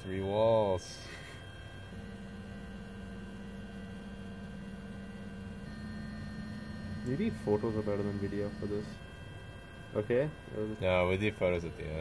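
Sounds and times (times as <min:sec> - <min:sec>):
faint higher motor tone: 0:00.0 - 0:12.0
stepper motor low tone: 0:01.7 - 0:11.0.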